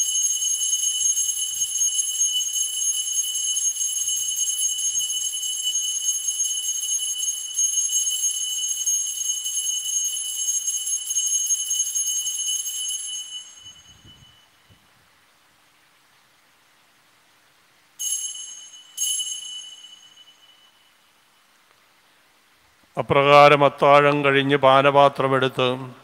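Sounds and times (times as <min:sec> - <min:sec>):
altar bell jingling: 0:00.0 - 0:14.7, 0:18.0 - 0:21.3.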